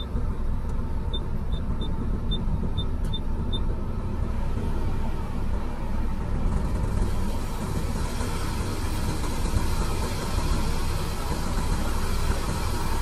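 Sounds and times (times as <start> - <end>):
diesel engine running: 0.0 - 13.0
hiss: 5.8 - 13.0.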